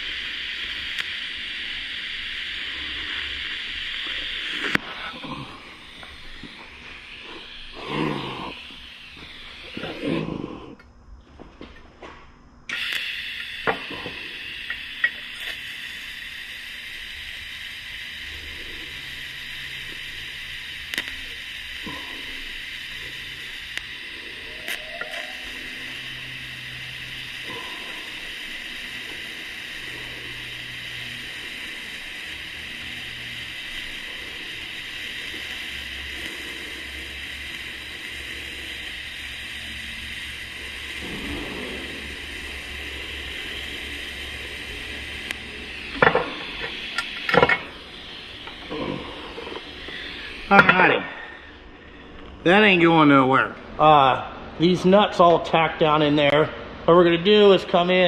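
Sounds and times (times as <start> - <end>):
welding arc hissing: 0.0 - 10.9, 12.7 - 58.0.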